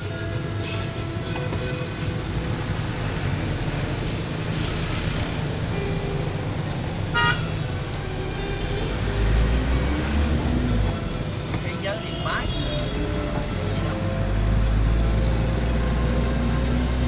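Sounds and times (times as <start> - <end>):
bus engine drone: 0.0 - 17.0
vehicle horn toot: 7.1 - 7.5, 12.0 - 13.1.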